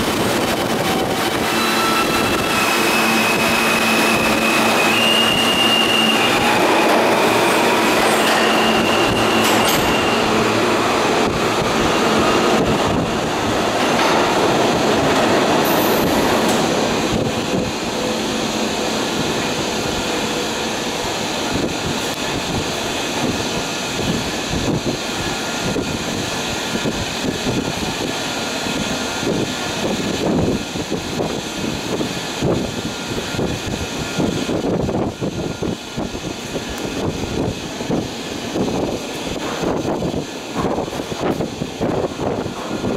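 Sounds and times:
train wheels clattering over rails: 0:00.0 - 0:26.0, 0:36.6 - 0:42.9
high wheel squeal: 0:01.0 - 0:10.8.

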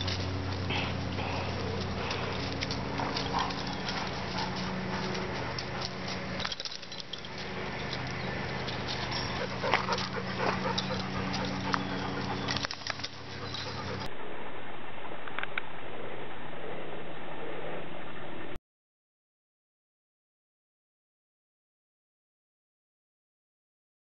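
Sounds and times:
dogs growling: 0:00.0 - 0:14.1
scuffling in dry leaves: 0:00.0 - 0:14.1.

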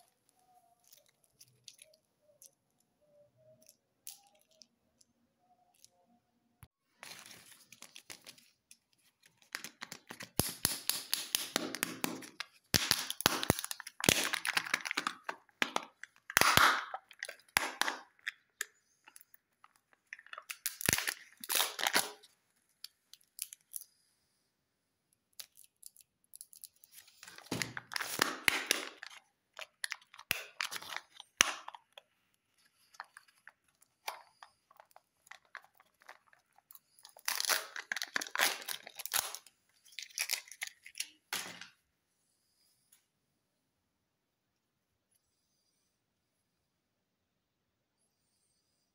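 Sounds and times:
wrapper crinkling and tearing: 0:07.0 - 0:22.3, 0:25.4 - 0:32.0, 0:32.6 - 0:41.7.

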